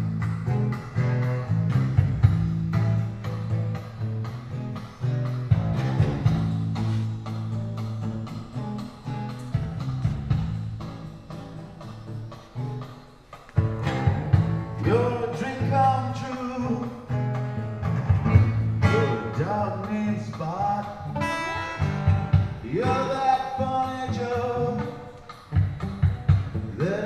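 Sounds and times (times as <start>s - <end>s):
guitar: 0.0s - 27.0s
steady bass line: 0.0s - 27.0s
person singing: 14.8s - 17.2s, 18.8s - 22.0s, 22.6s - 25.3s, 26.6s - 27.0s.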